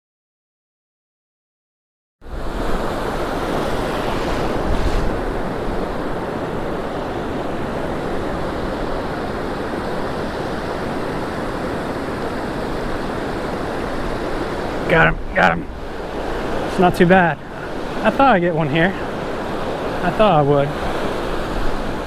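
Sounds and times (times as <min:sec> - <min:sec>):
wind on microphone: 0:02.3 - 0:18.1
surf breaking on beach: 0:02.3 - 0:22.0.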